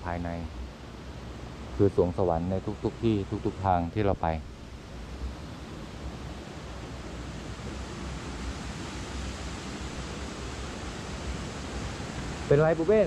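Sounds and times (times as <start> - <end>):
waterfall rushing: 7.5 - 13.0.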